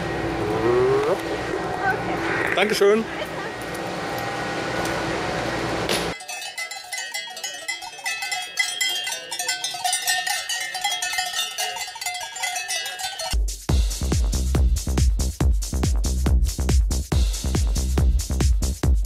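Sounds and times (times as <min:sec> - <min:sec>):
cowbells clanging: 0:06.1 - 0:13.4.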